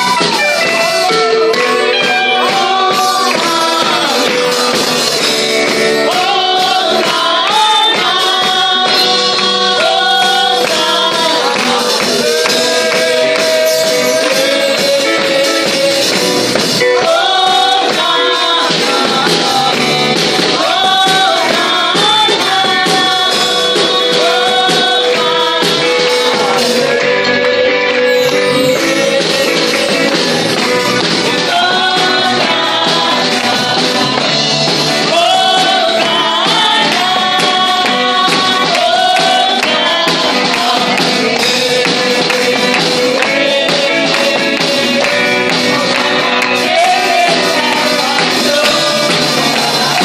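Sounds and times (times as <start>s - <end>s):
drum kit: 0.0s - 50.0s
guitar: 0.0s - 50.0s
keyboard: 0.0s - 50.0s
girl singing into a microphone: 6.0s - 12.2s, 17.0s - 26.6s
jingling percussion: 9.0s - 17.3s, 17.9s - 35.5s.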